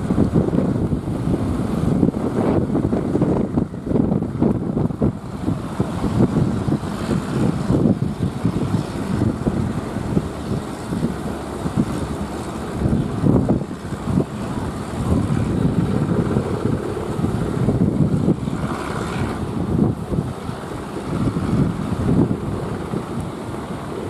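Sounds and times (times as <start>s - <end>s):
heavy surf breaking: 0.0s - 24.0s
wind buffeting microphone: 0.0s - 24.0s.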